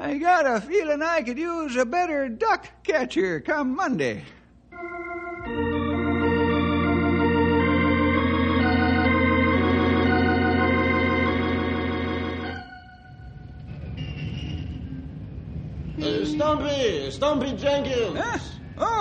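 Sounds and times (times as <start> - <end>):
organ chords: 4.7 - 13.8.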